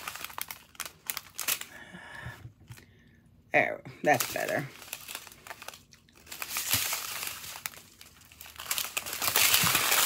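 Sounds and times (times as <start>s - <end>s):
plastic pouches crinkling: 0.0s - 1.8s, 4.0s - 10.0s.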